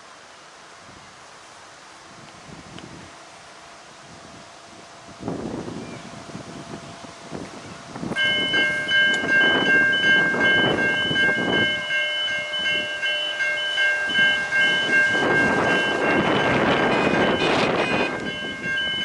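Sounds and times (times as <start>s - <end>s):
gusty wind: 0.7s - 19.0s
level crossing warning bell: 8.2s - 19.0s.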